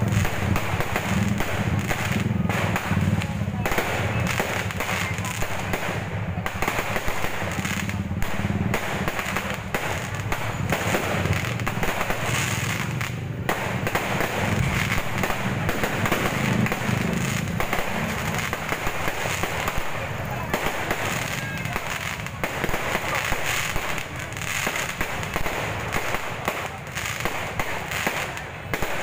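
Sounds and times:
fireworks popping and crackling: 0.0s - 29.0s.

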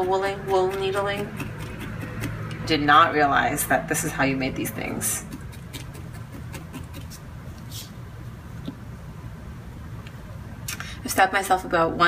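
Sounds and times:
low steady hum: 0.0s - 12.0s
felting needle stabbing foam: 4.8s - 7.2s.

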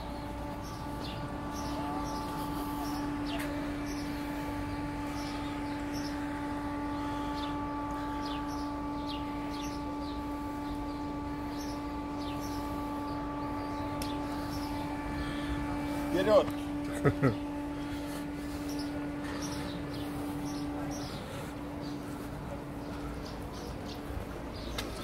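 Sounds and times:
small birds chirping: 0.0s - 25.0s
steady tonal hum: 0.0s - 25.0s.

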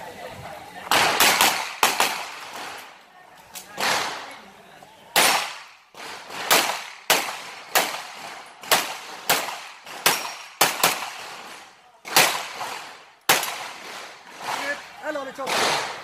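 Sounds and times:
pistol shots with echo: 0.9s - 2.8s, 5.1s - 16.0s.

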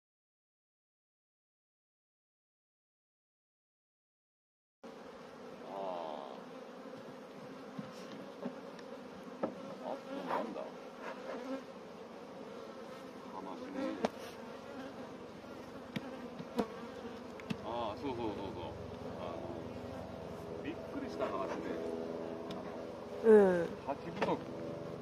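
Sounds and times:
bees buzzing: 4.8s - 25.0s
wooden hive frames knocking: 9.4s - 9.6s, 15.8s - 18.1s.

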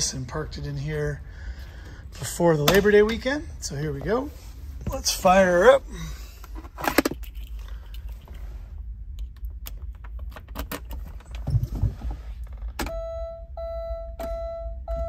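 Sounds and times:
car key jangling and clicking: 7.0s - 8.3s
car warning chime beeping: 12.8s - 15.0s.

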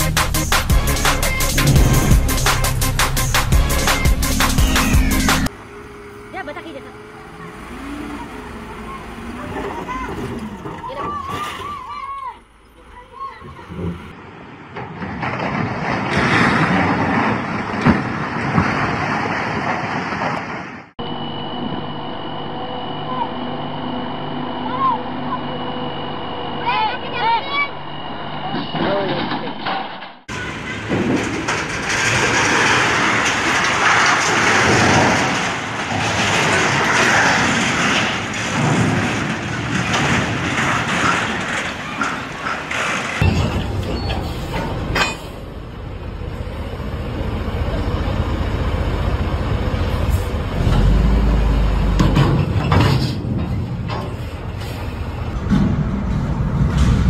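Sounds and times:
sharp metal crashes: 0.0s - 5.5s, 28.5s - 45.5s
steel structure collapsing: 0.0s - 5.5s, 13.0s - 20.9s, 28.3s - 57.0s.

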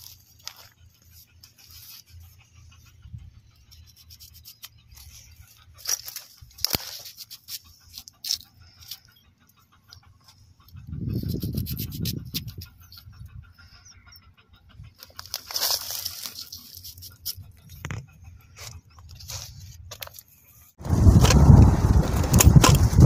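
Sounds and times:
low rumble: 20.8s - 23.0s.

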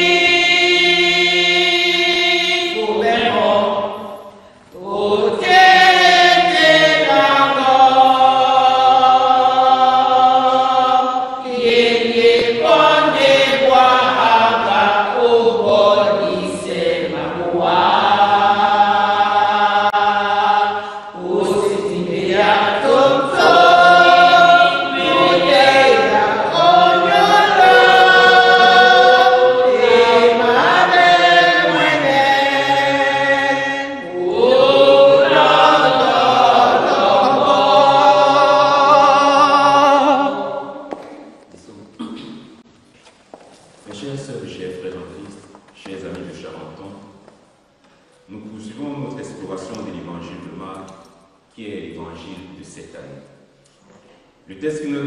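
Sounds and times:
congregation singing a hymn: 0.0s - 41.4s.

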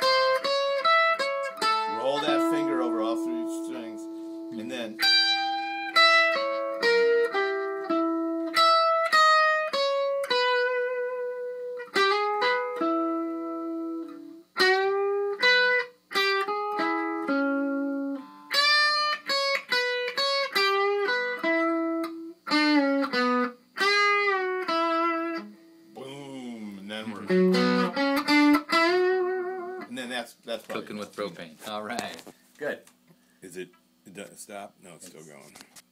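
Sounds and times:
electric guitar lead with bends: 0.0s - 26.3s, 27.2s - 29.8s.

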